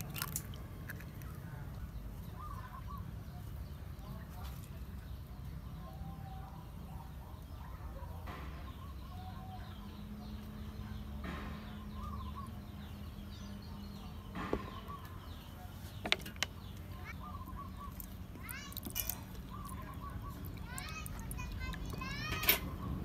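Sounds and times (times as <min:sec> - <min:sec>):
birds chirping: 0:00.0 - 0:23.0.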